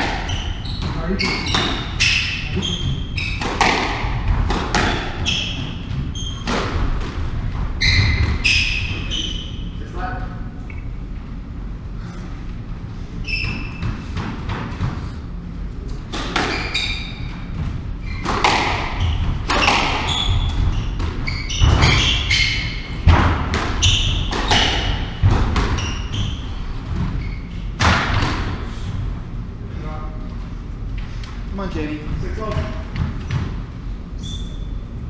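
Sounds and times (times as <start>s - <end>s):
squash ball smacking rackets and walls: 0.0s - 9.5s, 13.2s - 29.0s, 32.2s - 33.8s
shoe squeaks on wooden floor: 0.2s - 3.5s, 4.9s - 6.6s, 7.8s - 9.7s, 13.2s - 14.1s, 16.5s - 22.9s, 23.8s - 24.6s, 25.7s - 27.6s, 34.2s - 34.9s.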